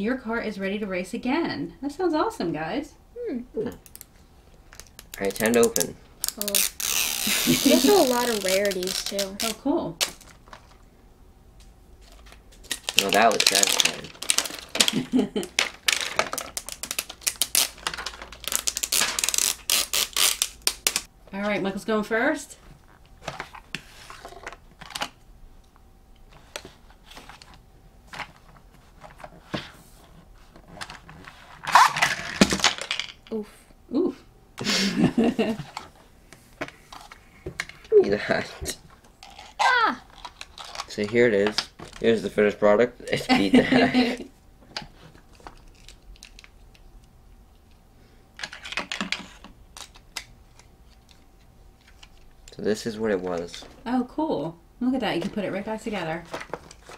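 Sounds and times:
toy launcher rattling burst: 0:05.5 - 0:09.2.

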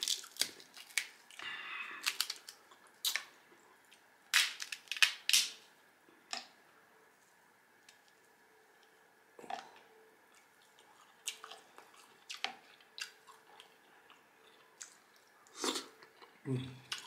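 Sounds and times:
crab shell cracking by hand: 0:00.0 - 0:01.2, 0:02.0 - 0:03.3, 0:04.3 - 0:05.6.

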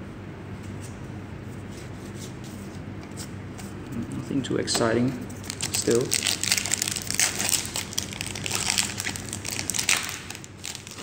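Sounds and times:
foil wrapper crinkling: 0:05.4 - 0:11.0.

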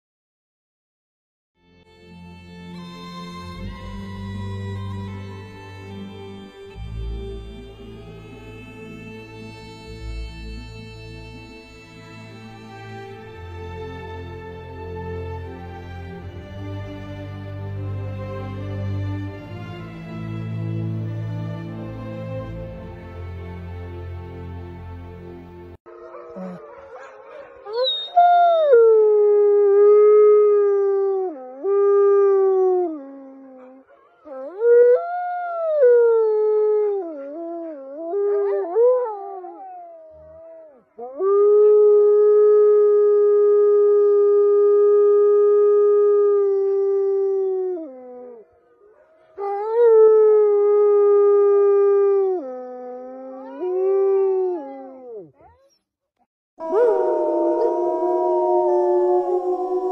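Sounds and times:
canine howling: 0:25.9 - 0:55.8, 0:56.6 - 0:59.9.

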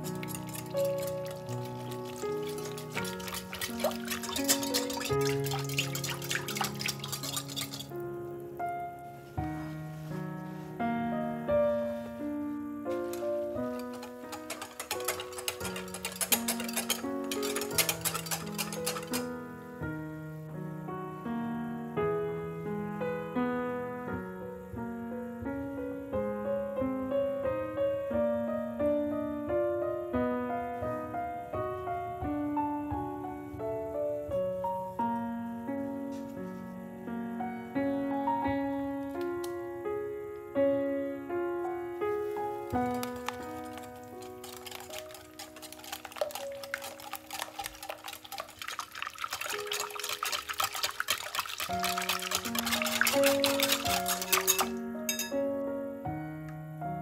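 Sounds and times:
liquid stirred in bowl: 0:00.0 - 0:08.1, 0:12.9 - 0:19.4, 0:42.3 - 0:55.3
gentle piano melody: 0:00.0 - 0:57.0
soft background music: 0:00.0 - 0:57.0.

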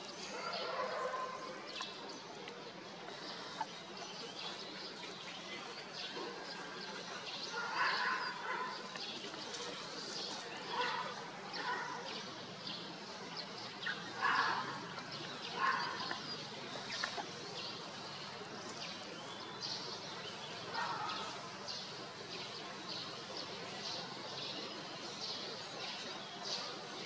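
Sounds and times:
small birds chirping: 0:00.0 - 0:26.8.

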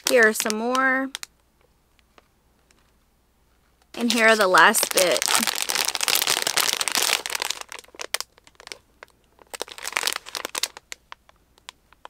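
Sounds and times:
plastic bags crinkling: 0:00.0 - 0:01.3, 0:04.0 - 0:12.0.

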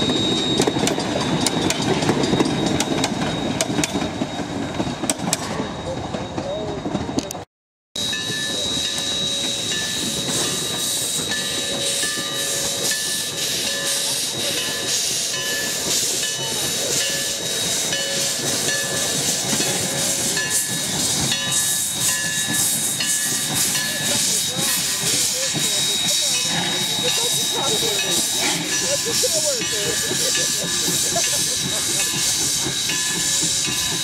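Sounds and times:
steam locomotive chuffs: 0:00.0 - 0:34.0
steam hiss: 0:08.0 - 0:34.0.

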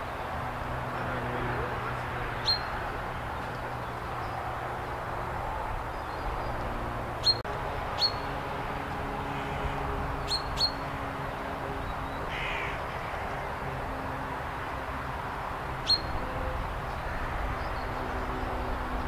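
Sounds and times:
chaffinch calling: 0:02.4 - 0:02.8, 0:07.2 - 0:07.4, 0:08.0 - 0:08.2, 0:10.2 - 0:10.8, 0:15.8 - 0:16.2.

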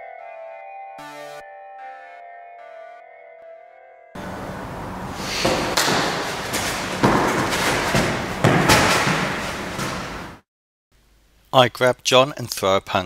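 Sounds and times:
shoes shuffling on mat: 0:04.2 - 0:10.4
thuds of bodies on foam mat: 0:05.2 - 0:10.4.

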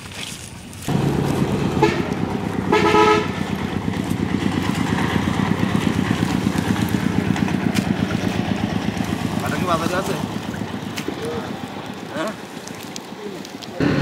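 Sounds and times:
small engine puttering: 0:00.9 - 0:14.0.

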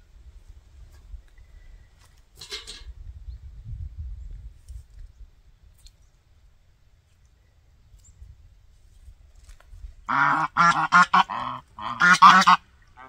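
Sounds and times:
geese honking: 0:10.1 - 0:13.0.

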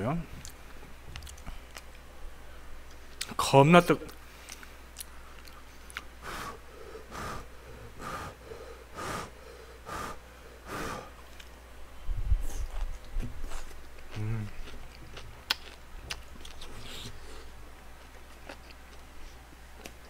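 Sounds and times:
man huffing breaths: 0:06.2 - 0:11.2.

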